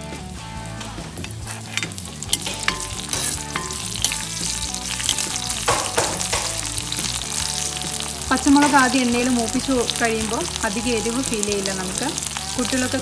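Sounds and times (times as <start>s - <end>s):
spices sizzling in hot oil: 0.0s - 13.0s
steel spoon clinking and scraping pan: 1.2s - 6.9s.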